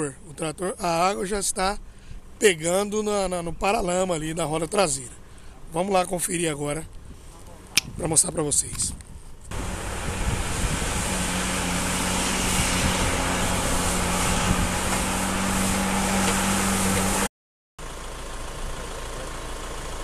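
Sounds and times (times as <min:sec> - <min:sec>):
water rushing hiss: 0:09.5 - 0:17.3
truck engine running: 0:09.5 - 0:20.0.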